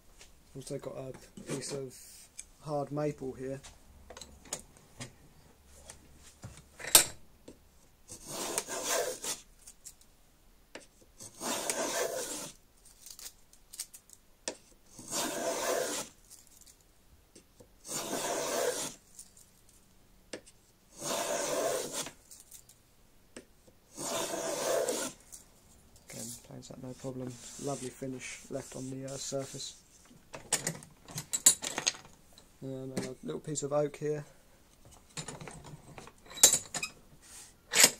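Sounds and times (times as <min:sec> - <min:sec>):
hand plane shaving wood: 0:08.2 - 0:09.4, 0:11.3 - 0:12.6, 0:15.0 - 0:16.1, 0:17.9 - 0:19.0, 0:21.0 - 0:22.1, 0:23.9 - 0:25.2.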